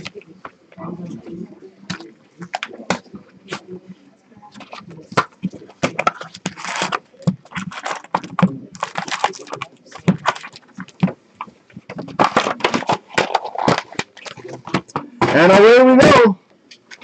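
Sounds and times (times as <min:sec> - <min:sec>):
card packs crinkling and rustling: 0:04.7 - 0:14.7.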